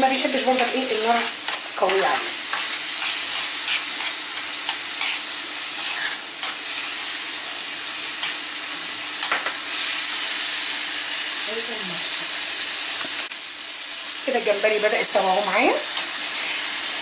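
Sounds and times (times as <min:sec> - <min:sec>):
shrimp sizzling in sauce: 0:00.0 - 0:17.0
spoon scraping a pan: 0:01.0 - 0:07.0.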